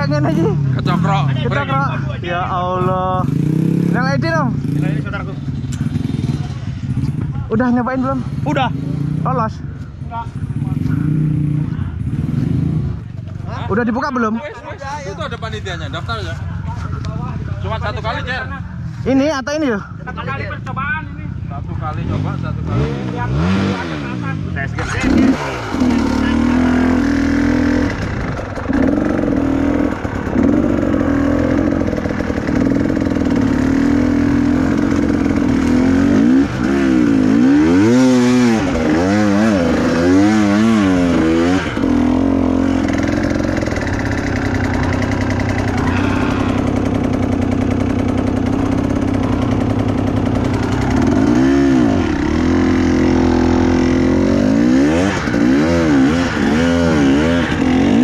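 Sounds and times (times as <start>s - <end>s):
motorcycle engine idling: 0.0s - 22.6s, 24.5s - 58.0s
motorcycle engine rev blips: 21.9s - 58.0s.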